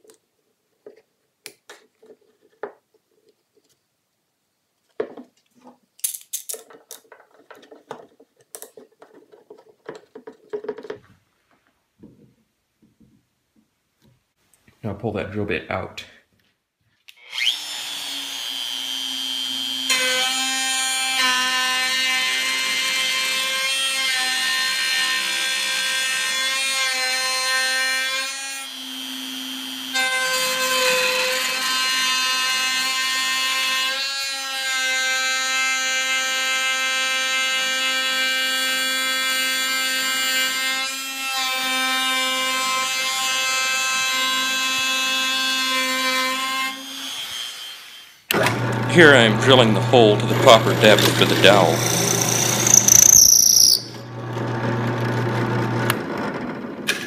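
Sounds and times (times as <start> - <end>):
wood router whining: 17.2 - 57.0.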